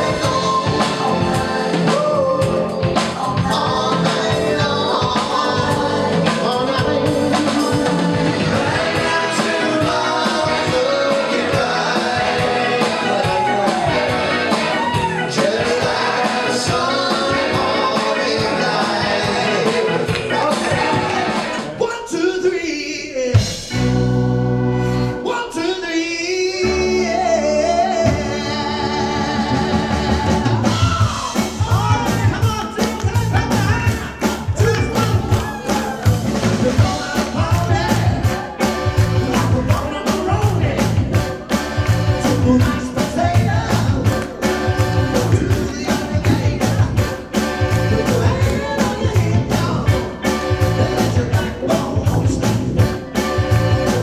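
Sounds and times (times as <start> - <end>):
keyboards: 0.0 - 22.4, 23.2 - 54.0
men singing live: 0.0 - 23.7, 25.3 - 52.8
electric guitar: 23.4 - 25.3, 26.6 - 54.0
steady beat: 29.3 - 54.0.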